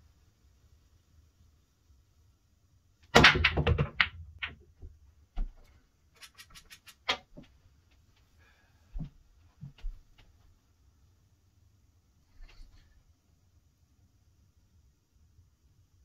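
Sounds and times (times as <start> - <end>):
pool balls clacking: 3.1 - 5.0.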